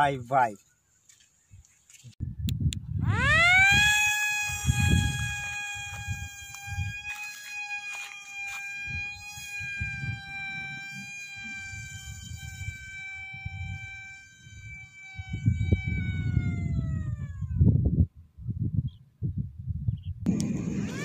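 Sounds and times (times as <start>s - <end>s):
wind rumble on microphone: 2.1s - 7.2s, 8.8s - 21.0s
model aeroplane motor whine: 3.0s - 17.9s, 20.3s - 21.0s.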